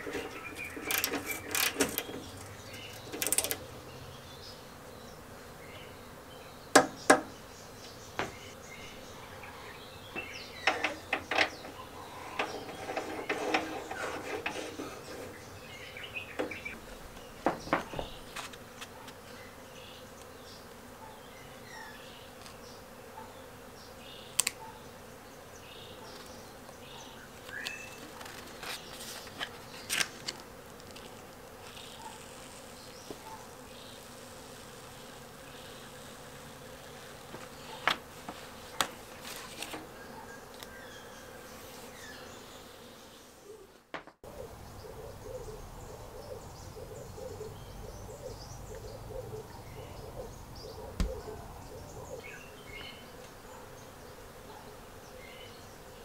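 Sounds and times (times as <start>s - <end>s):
metal clicks and knocks: 0.0s - 3.6s, 10.6s - 11.8s.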